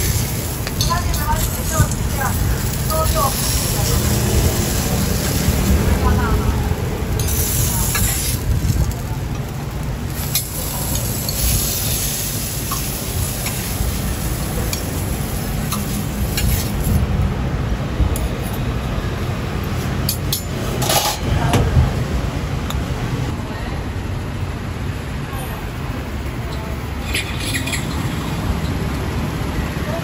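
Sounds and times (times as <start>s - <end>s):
metal tongs and spatula scraping: 0.0s - 5.4s, 7.2s - 8.4s, 10.2s - 13.7s, 15.7s - 16.9s, 27.0s - 28.3s
low rumble of street traffic: 0.0s - 30.0s.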